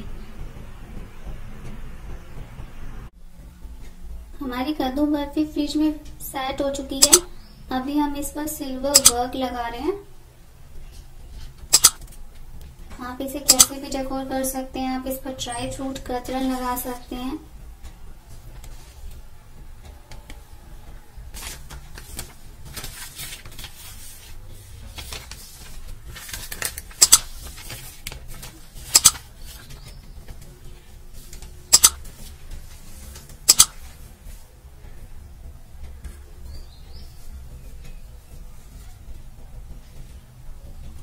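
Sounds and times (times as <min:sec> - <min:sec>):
backing paper rustling: 0:10.8 - 0:34.5
sharp double snaps: 0:11.7 - 0:12.1, 0:28.9 - 0:29.2, 0:31.7 - 0:32.0, 0:33.5 - 0:33.8.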